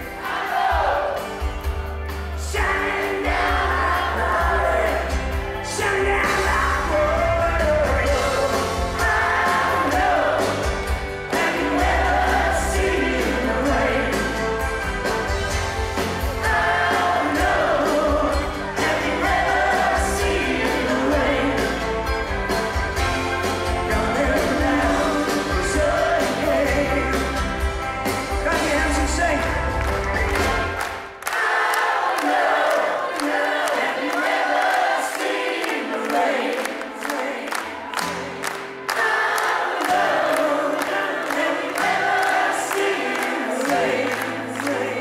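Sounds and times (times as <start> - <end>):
live rock band playing: 0.0 - 31.2
person singing: 2.3 - 14.6, 16.0 - 22.2, 23.5 - 27.6.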